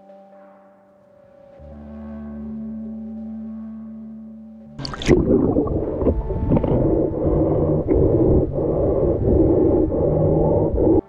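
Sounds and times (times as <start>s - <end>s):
camera splashing into water: 4.8s - 6.7s
muffled underwater churning: 4.8s - 11.0s.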